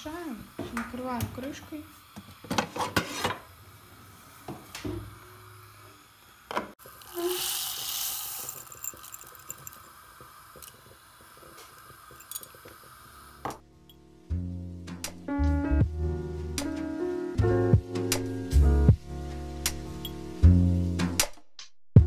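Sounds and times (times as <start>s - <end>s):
grains poured into pot of water: 6.8s - 13.3s.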